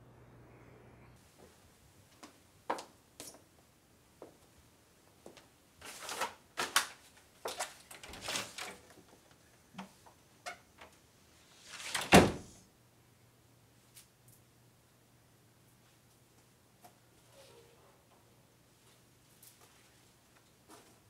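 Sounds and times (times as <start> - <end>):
wooden door unlatching and opening: 7.9 - 8.8, 11.8 - 12.5
door shutting with heavy thud: 12.0 - 12.6.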